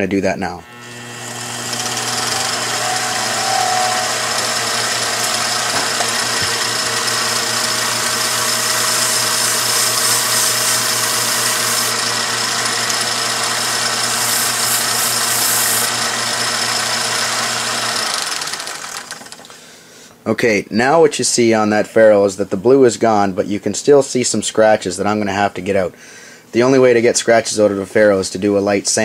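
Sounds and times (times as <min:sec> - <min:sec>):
lathe motor hum and whine: 0:00.6 - 0:19.4
sponge rubbing on spinning ferrule: 0:14.1 - 0:15.9.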